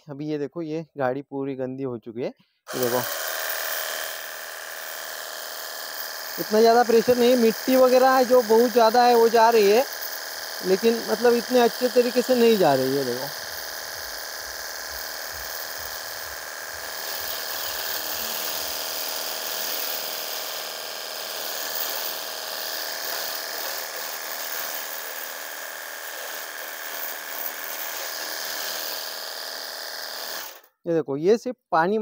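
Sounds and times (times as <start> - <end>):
water jet spraying hiss: 2.7 - 25.4
electric pump motor whine: 2.7 - 30.7.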